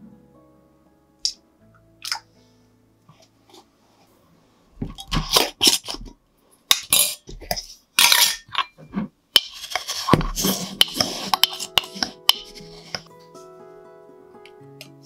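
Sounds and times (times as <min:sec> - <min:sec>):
metal lid scraping on glass jar: 0:05.1 - 0:06.1, 0:06.8 - 0:08.8, 0:09.4 - 0:13.1
spoon crunching into sugar: 0:09.4 - 0:13.0.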